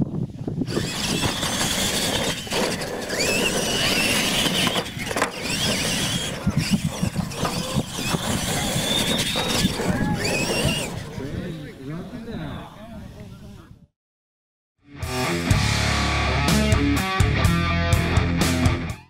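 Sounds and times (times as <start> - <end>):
trucks knocking landing: 0.7 - 11.2
model truck motors whining: 0.7 - 12.0
tyres rushing on dirt: 0.7 - 12.0.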